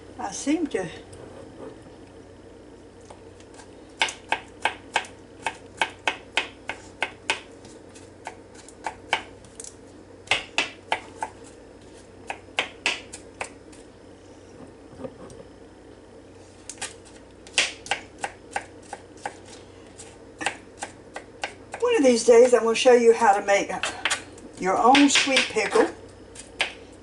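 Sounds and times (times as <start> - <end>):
knife chopping on cutting board: 4.0 - 9.3, 12.3 - 13.5, 17.5 - 19.4.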